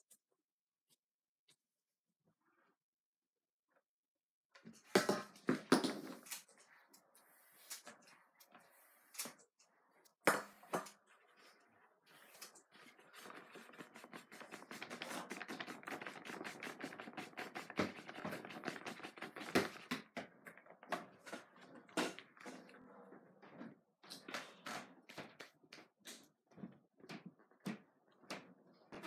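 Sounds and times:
scratchy strokes on paper: 12.1 - 19.8
paper rustling and taps: 13.2 - 21.1.

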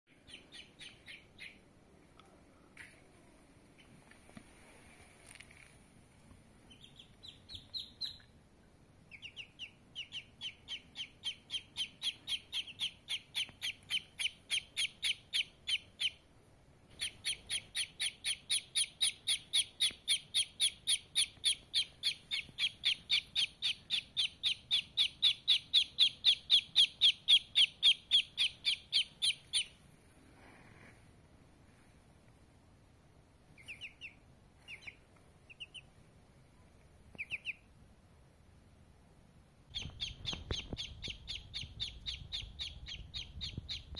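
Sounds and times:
duckling peeping: 0.1 - 1.8, 6.6 - 8.4, 9.0 - 16.3, 16.9 - 29.8, 33.5 - 36.0, 37.1 - 37.8, 39.7 - 43.9.

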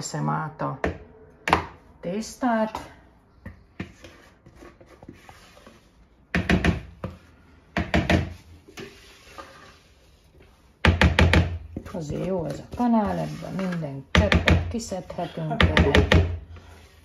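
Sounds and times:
utensil knocking on cookware: 14.1 - 14.9.

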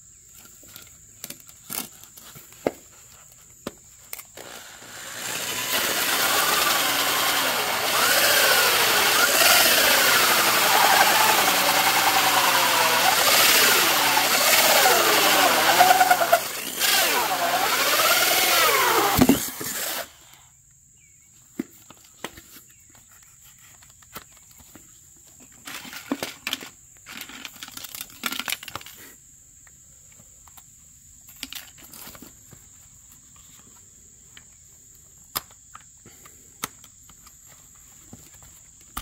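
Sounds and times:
small motor running: 4.4 - 20.1.

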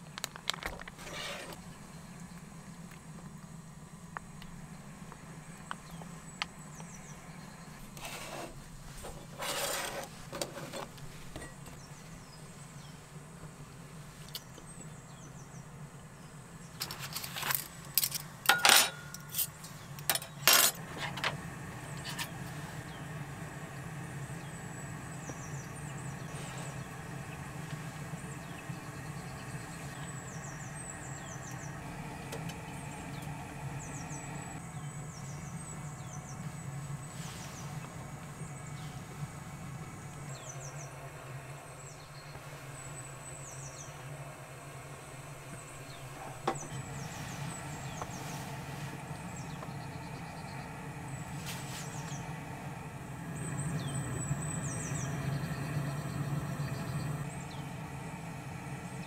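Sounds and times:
steady low hum: 0.0 - 59.0
metal cutlery clinking: 16.9 - 20.8.

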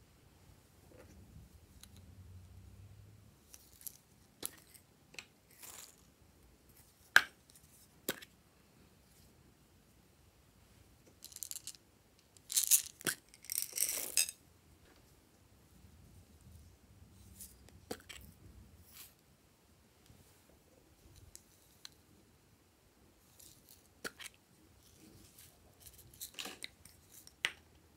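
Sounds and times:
beads rattling into glass bowl: 5.6 - 6.1, 11.2 - 11.8, 12.4 - 14.4.

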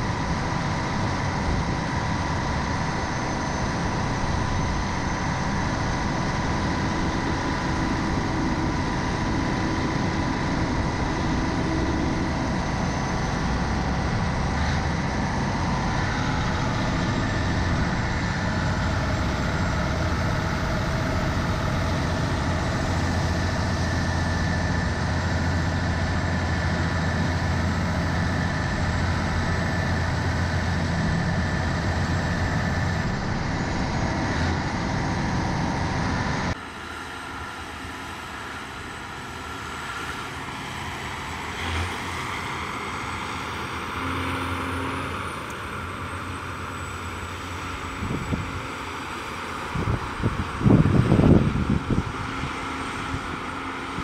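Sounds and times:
tractor diesel engines under load: 0.0 - 54.0
wind: 0.0 - 54.0.

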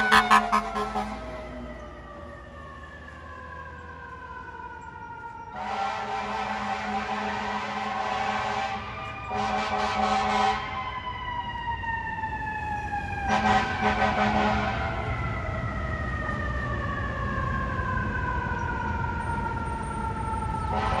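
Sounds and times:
air horn blasts: 0.0 - 1.3, 5.6 - 10.7, 13.3 - 14.8, 20.7 - 21.0
mechanical siren wailing: 0.0 - 21.0.

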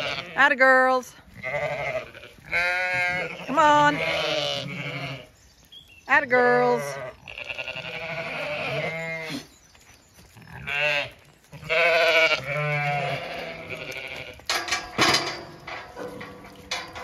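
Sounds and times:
sheep bleating: 0.0 - 0.6, 1.3 - 5.3, 6.5 - 9.5, 10.4 - 14.6.

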